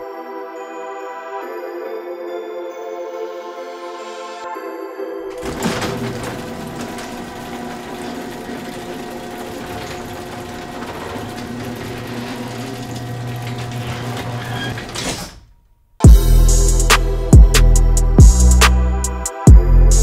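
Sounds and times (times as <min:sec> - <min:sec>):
metal roller shutter rattling: 0:05.3 - 0:15.6.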